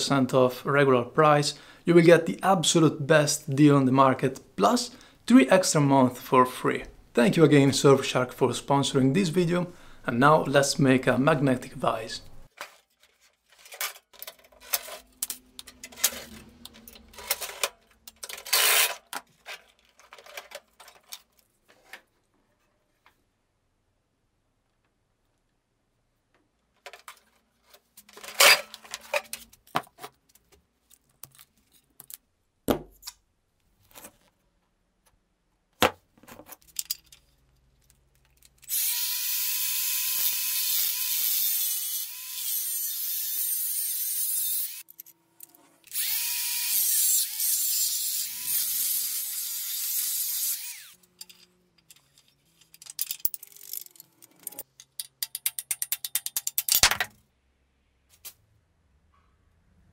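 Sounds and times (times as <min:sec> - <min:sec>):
metal being handled: 0:12.5 - 0:22.1, 0:26.8 - 0:32.2, 0:36.2 - 0:38.6, 0:51.0 - 0:57.2
angle grinder cutting metal: 0:38.7 - 0:44.9, 0:45.9 - 0:51.5.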